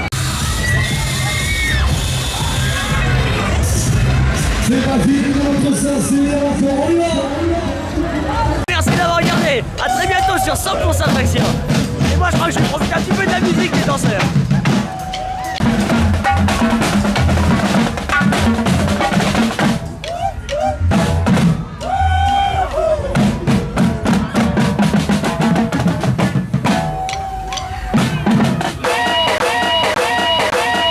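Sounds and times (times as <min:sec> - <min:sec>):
bass drum thumps: 0:08.7 - 0:15.0, 0:15.6 - 0:30.9
marching drums playing: 0:08.7 - 0:30.9.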